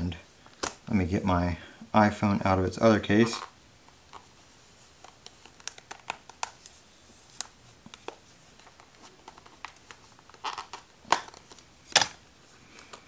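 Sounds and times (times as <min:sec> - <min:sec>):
plastic phone case clicking: 0:05.0 - 0:06.6
plastic case snapping: 0:09.3 - 0:12.2.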